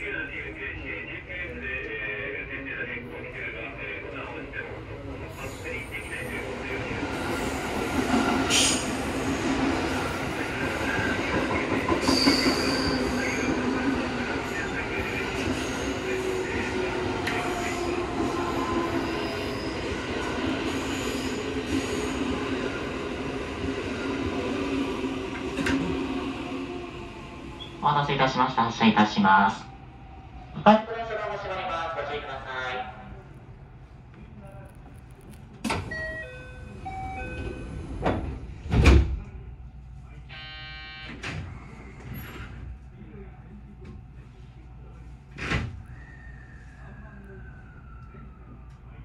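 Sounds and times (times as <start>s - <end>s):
door chime tones: 35.9s - 37.7s
steady buzzer: 40.3s - 41.2s.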